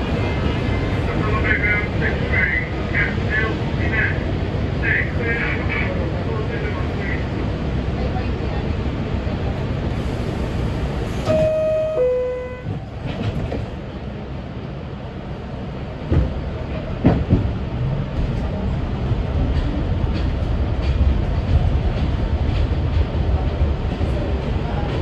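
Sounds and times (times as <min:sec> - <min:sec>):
subway car rumbling: 0:00.0 - 0:25.0
two-note door chime: 0:11.3 - 0:12.6.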